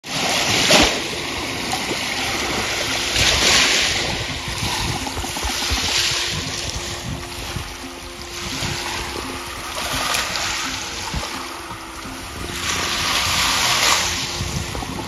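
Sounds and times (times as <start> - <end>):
waves washing onto sandy shore: 0.0 - 15.0.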